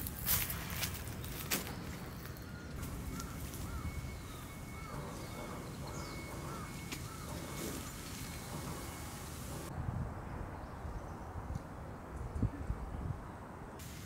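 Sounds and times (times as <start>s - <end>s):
crow cawing: 2.8s - 7.9s.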